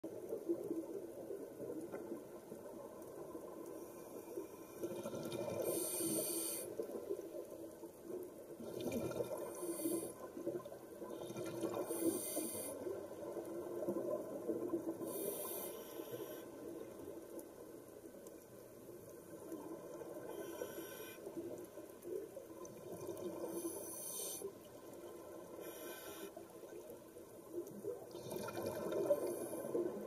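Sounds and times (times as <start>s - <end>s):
regulator hissing inhale: 5.6s - 6.8s, 9.5s - 10.3s, 11.8s - 12.9s, 15.0s - 16.6s, 20.3s - 21.4s, 23.5s - 24.5s, 25.5s - 26.4s
bubbles gurgling underwater: 27.8s - 30.0s.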